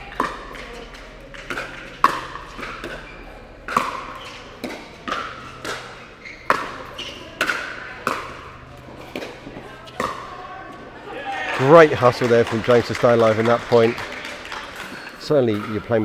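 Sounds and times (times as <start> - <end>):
paddles hitting plastic ball: 0.0 - 10.4
ball bouncing on court: 0.0 - 10.9, 14.8 - 16.0.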